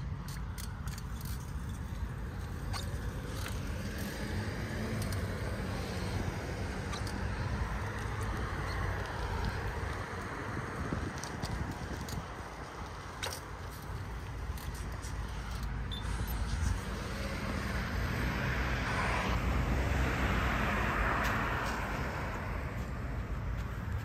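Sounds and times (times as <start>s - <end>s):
car passing: 16.8s - 23.5s.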